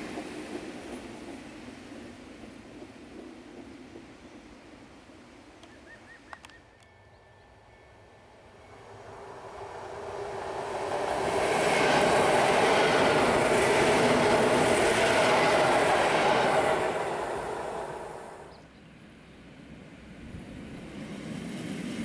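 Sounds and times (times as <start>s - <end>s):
train passing at speed: 0.0s - 22.0s.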